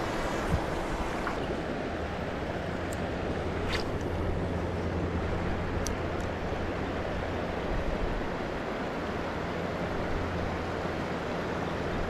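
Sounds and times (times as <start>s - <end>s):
wind buffeting microphone: 0.0s - 1.6s
water noise: 0.0s - 12.0s.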